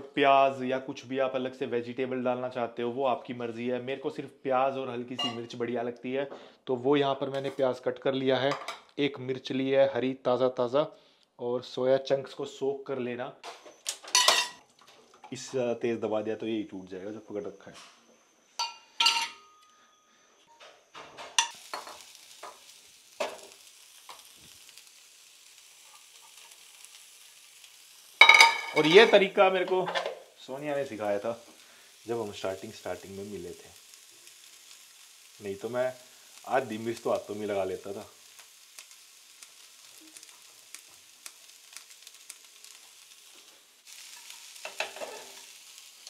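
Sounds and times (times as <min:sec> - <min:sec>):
utensils clinking against pan: 0:05.2 - 0:05.5, 0:14.0 - 0:14.6, 0:18.6 - 0:19.8, 0:21.2 - 0:22.6, 0:28.2 - 0:30.2, 0:44.1 - 0:45.4
food sizzling in a frying pan: 0:13.5 - 0:14.6, 0:20.9 - 0:46.0.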